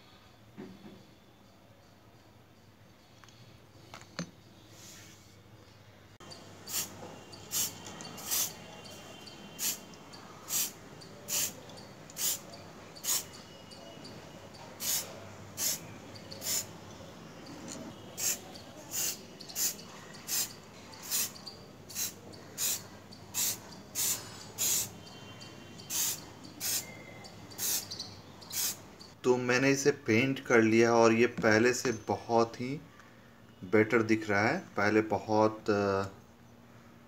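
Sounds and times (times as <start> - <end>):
spray-paint can hissing: 6.3 - 13.4, 14.8 - 15.8, 16.4 - 16.7, 18.2 - 25.1, 25.8 - 26.9, 27.5 - 28.8.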